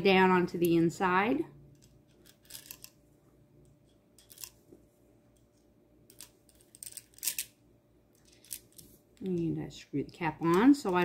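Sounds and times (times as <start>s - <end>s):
screwdriver tips clicking and scraping: 1.7s - 3.0s, 3.9s - 4.6s, 6.1s - 7.5s, 8.2s - 9.5s.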